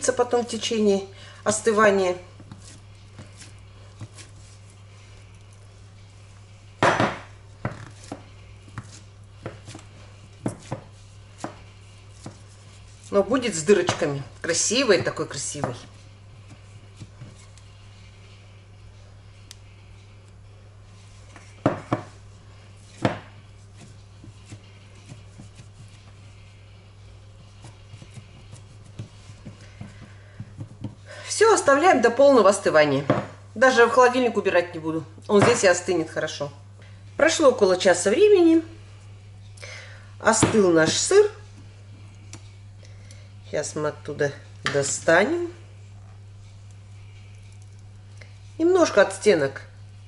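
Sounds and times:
spatula scraping and tapping: 0:02.3 - 0:04.6, 0:07.6 - 0:17.7, 0:22.9 - 0:26.3, 0:27.3 - 0:31.0.

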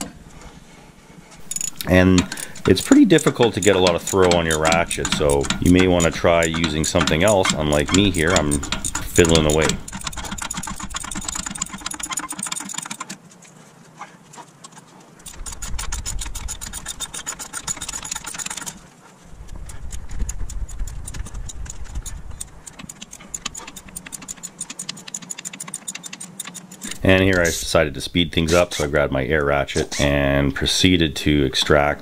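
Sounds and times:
hand ratchet clicking: 0:01.4 - 0:13.2, 0:15.2 - 0:18.8, 0:19.4 - 0:27.7.

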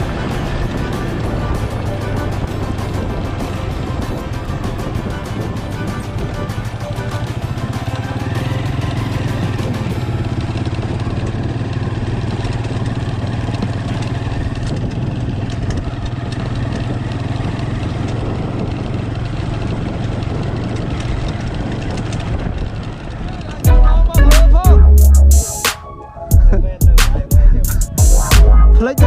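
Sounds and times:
music playing: 0:00.0 - 0:10.2, 0:23.6 - 0:29.0
engine drone: 0:00.0 - 0:29.0.

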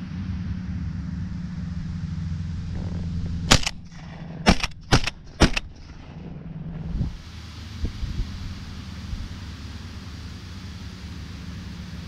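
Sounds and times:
shotgun shots: 0:02.8 - 0:06.8
wind rumble on microphone: 0:05.1 - 0:09.6.

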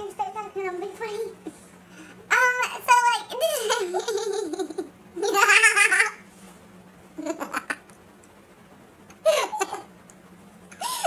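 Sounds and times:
girl laughing: 0:03.4 - 0:06.2, 0:07.2 - 0:07.9, 0:09.2 - 0:09.9, 0:10.8 - 0:11.0.

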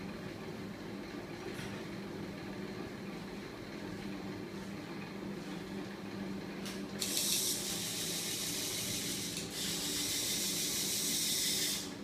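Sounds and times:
motor humming: 0:07.0 - 0:12.0.

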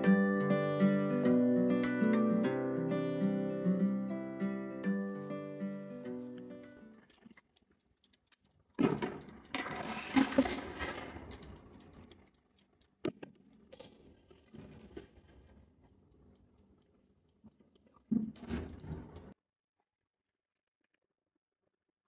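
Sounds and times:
acoustic guitar music: 0:00.0 - 0:07.0.

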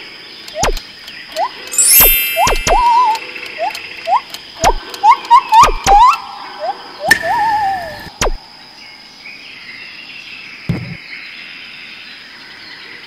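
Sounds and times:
click: 0:00.4 - 0:01.5, 0:02.4 - 0:06.2
cartoon whistles: 0:01.4 - 0:08.4.

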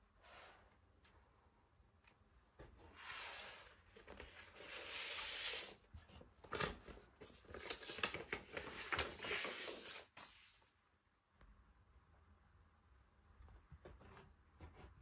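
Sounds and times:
paper and cardboard rustling: 0:02.6 - 0:10.6.

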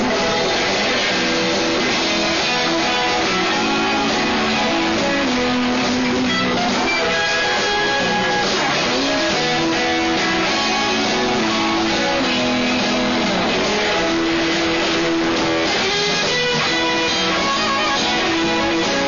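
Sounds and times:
blues band playing a shuffle: 0:00.0 - 0:19.0
lead guitar sliding sustained notes: 0:00.0 - 0:19.0.

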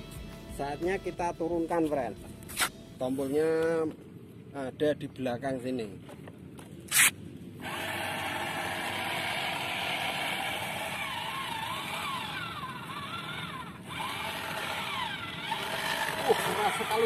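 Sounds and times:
small electric motor whining: 0:06.9 - 0:17.0.

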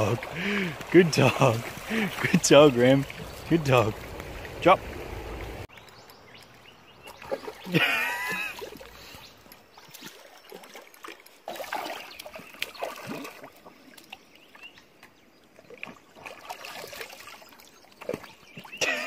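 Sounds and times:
dog splashing through water: 0:00.0 - 0:05.7, 0:09.8 - 0:14.1, 0:15.7 - 0:19.0.

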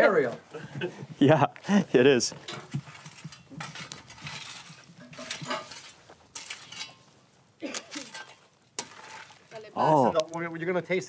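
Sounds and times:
tool raking through embers: 0:02.3 - 0:10.4.

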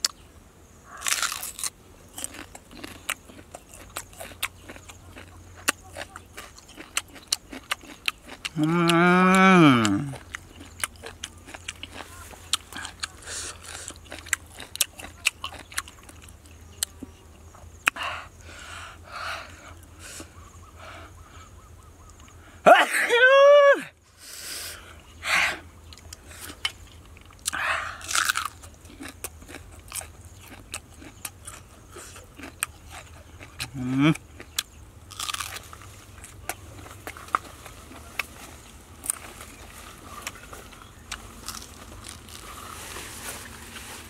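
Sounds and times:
crunchy biting and chewing: 0:00.9 - 0:18.1, 0:25.8 - 0:44.0
person vocal exclamation: 0:08.6 - 0:10.2, 0:22.6 - 0:23.9.

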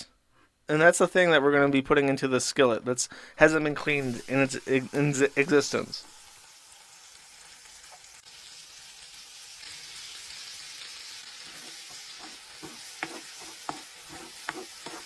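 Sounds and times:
food sizzling in a frying pan: 0:03.8 - 0:15.0
spoon stirring a pan: 0:11.0 - 0:15.0.

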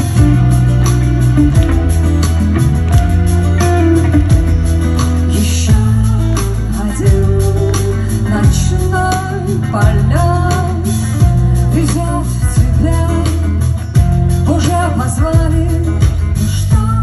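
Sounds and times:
acoustic guitar: 0:00.0 - 0:17.0
bass guitar: 0:00.0 - 0:17.0
drums: 0:00.0 - 0:17.0
person singing: 0:05.0 - 0:17.0.

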